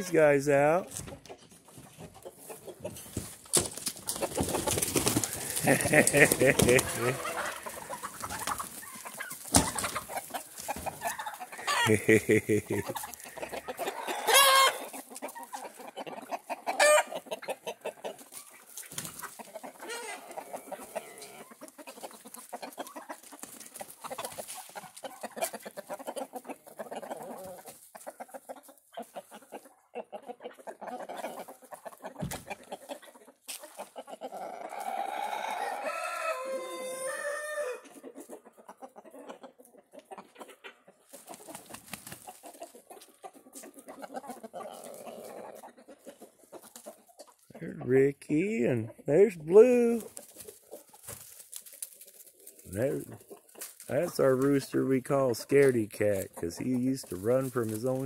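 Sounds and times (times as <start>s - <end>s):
chickens clucking: 0.0s - 58.0s
rooster crowing: 34.9s - 37.8s.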